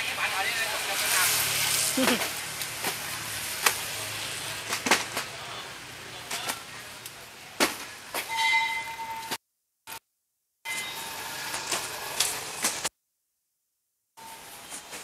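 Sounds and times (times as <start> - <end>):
steady background noise: 0.0 - 10.0.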